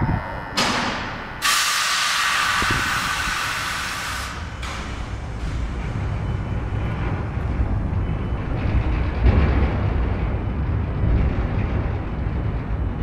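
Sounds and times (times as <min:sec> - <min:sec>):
steady low rumble: 0:00.0 - 0:13.0
short air puff: 0:01.4 - 0:04.4
compressed air hissing: 0:01.4 - 0:04.5.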